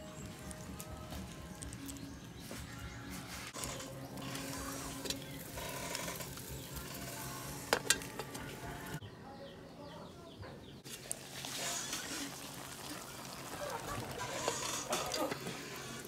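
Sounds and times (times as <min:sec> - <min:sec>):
wood fire crackling: 0:00.0 - 0:09.0, 0:10.8 - 0:16.0
pot lid clinking: 0:07.7 - 0:08.4.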